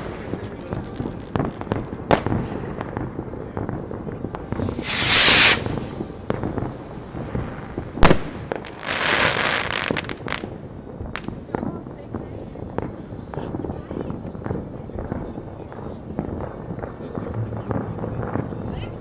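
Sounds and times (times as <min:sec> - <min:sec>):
firework bangs and crackles: 0:00.0 - 0:19.0
rocket hissing rush: 0:04.4 - 0:06.1.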